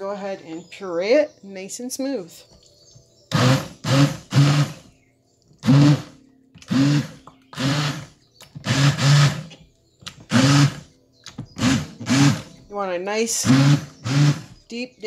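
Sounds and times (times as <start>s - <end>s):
immersion blender whirring: 3.3s - 4.9s, 5.6s - 9.5s, 10.3s - 10.8s, 11.6s - 12.5s, 13.4s - 14.6s.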